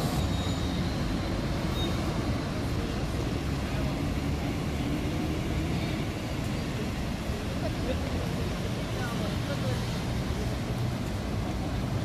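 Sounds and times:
city street traffic hum: 0.0s - 12.0s
trams passing: 0.0s - 12.0s.

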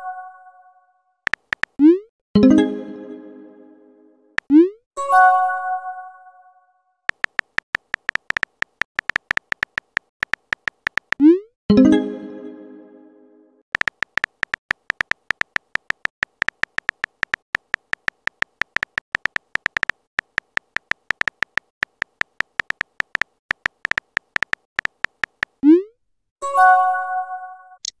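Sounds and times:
phone keyboard clicks: 1.3s - 1.8s, 7.1s - 11.2s, 13.8s - 25.6s.

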